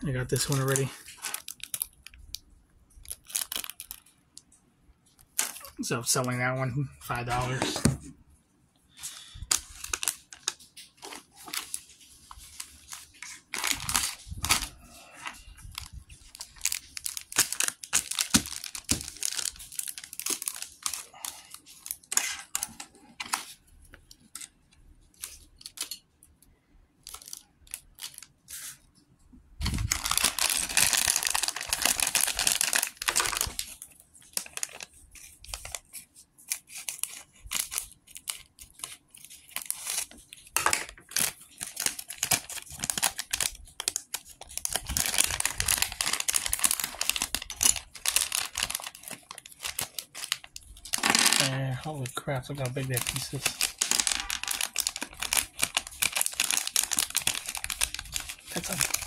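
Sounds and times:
plastic bag crinkling and tearing: 0.1 - 4.2, 5.2 - 6.4, 7.1 - 7.8, 9.0 - 26.0, 27.0 - 28.8, 29.6 - 59.0
clicks and crackles: 52.5 - 59.0.

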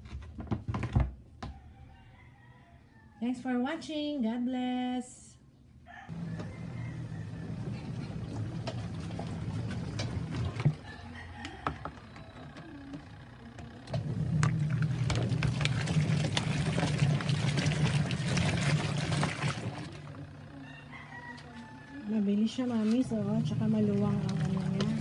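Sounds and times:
washing machine churning clothes: 6.1 - 25.0.

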